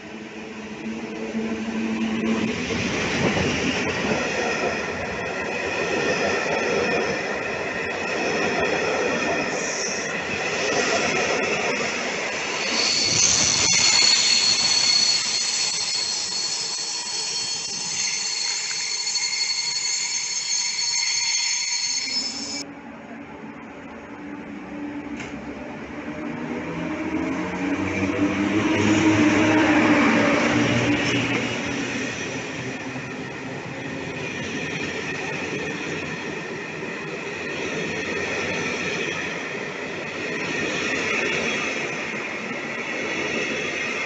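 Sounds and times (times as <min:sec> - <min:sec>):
train rolling past: 0:00.0 - 0:44.0
train wheels squealing: 0:12.4 - 0:22.6.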